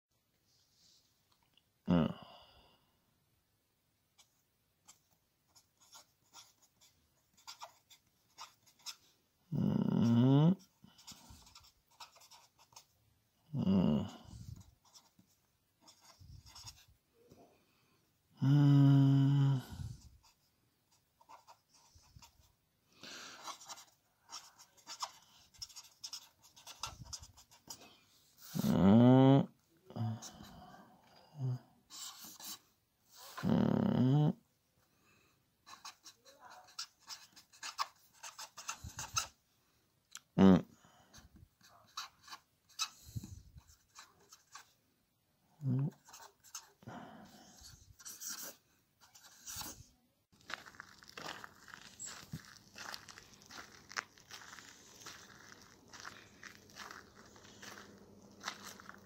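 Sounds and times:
marker scratching on paper: 0:04.2 - 0:09.1, 0:10.9 - 0:12.9, 0:14.5 - 0:16.9, 0:19.9 - 0:22.5, 0:23.3 - 0:27.8, 0:31.9 - 0:33.4, 0:35.6 - 0:39.4, 0:41.6 - 0:44.8, 0:45.9 - 0:46.8, 0:47.4 - 0:49.9.

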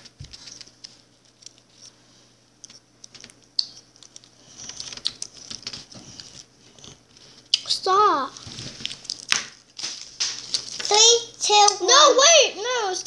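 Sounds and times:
plastic candy wrapper crinkling: 0:04.0 - 0:06.5, 0:07.2 - 0:11.8.

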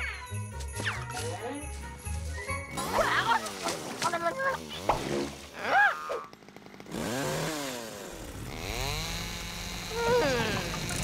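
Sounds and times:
cartoon chainsaw revving: 0:04.3 - 0:11.0.

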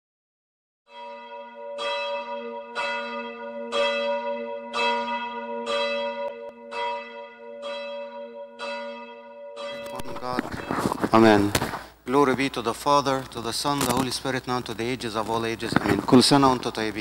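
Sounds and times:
church bell tolling: 0:00.9 - 0:11.4.

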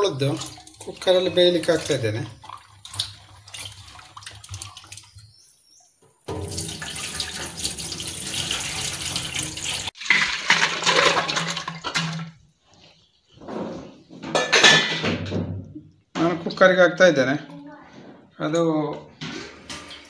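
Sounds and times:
water pouring into metal pot: 0:00.0 - 0:05.3, 0:06.3 - 0:12.4.

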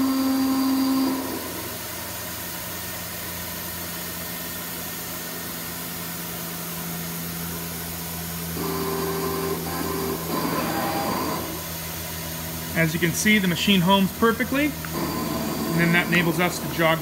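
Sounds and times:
axis drive whine: 0:00.0 - 0:02.4, 0:06.4 - 0:17.0
low machine hum: 0:00.0 - 0:17.0.

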